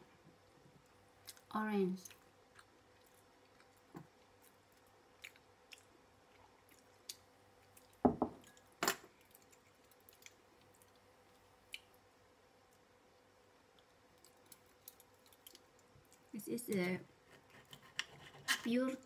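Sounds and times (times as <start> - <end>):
glass thud on counter: 8.1 - 8.4.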